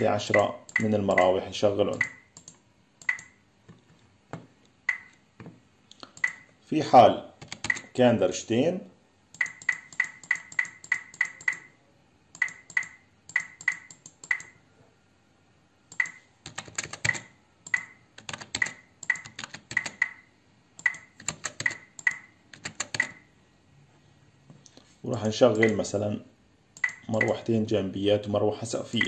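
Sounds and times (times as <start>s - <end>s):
keyboard key clicks: 7.4s - 7.9s, 15.9s - 20.2s, 20.8s - 23.2s, 25.6s - 25.8s.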